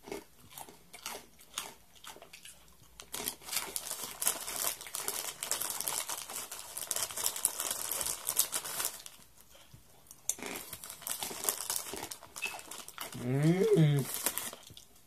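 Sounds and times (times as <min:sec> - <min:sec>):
plastic wrapper crinkling: 0:03.1 - 0:09.3, 0:10.6 - 0:15.0.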